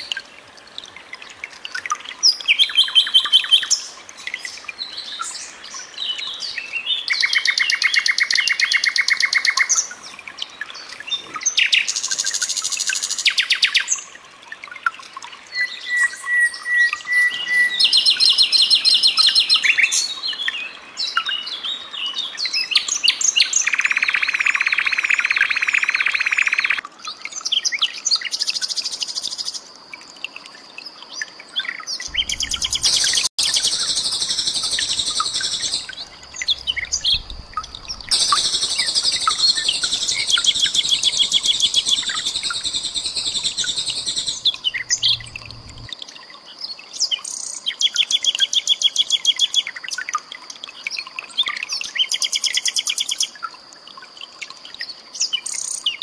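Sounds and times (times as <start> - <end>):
nightingale song: 15.5 - 26.8, 31.6 - 50.2.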